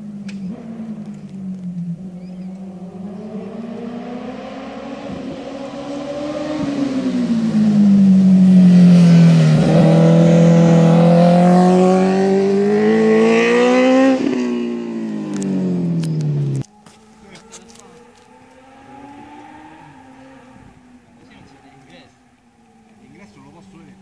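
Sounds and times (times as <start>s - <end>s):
motorcycle engine accelerating: 0.0s - 24.0s.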